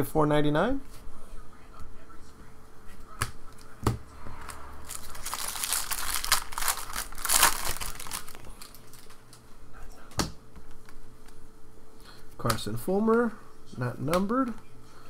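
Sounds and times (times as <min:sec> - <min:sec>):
foil wrapper crinkling and tearing: 0:04.9 - 0:09.4.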